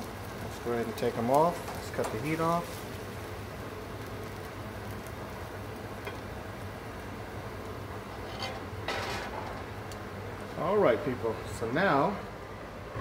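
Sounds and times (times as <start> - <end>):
glaze sizzling in a pan: 0.0 - 12.5
low hum: 12.4 - 13.0.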